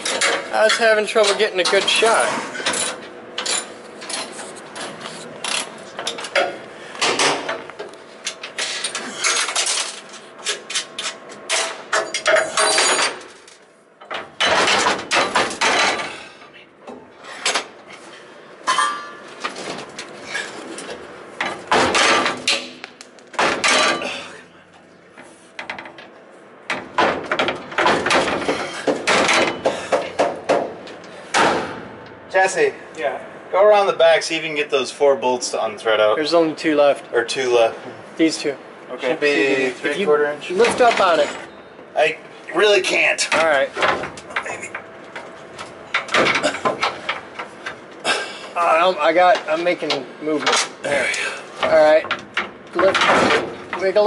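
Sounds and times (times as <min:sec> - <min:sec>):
metal hand tools clanking on metal: 0:00.0 - 0:04.3.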